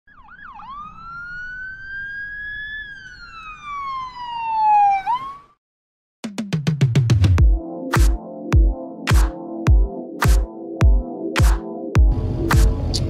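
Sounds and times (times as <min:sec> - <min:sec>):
emergency vehicle siren: 0:00.0 - 0:05.6.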